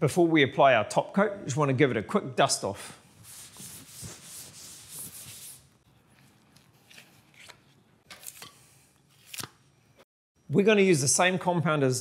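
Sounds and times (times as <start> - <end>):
cloth rubbing on plasterboard: 3.1 - 5.8.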